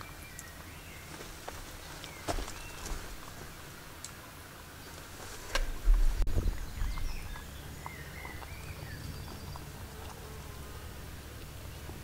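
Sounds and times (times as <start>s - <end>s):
birds chirping faintly: 0.0s - 12.0s
dog eating crunchy food: 6.3s - 10.3s.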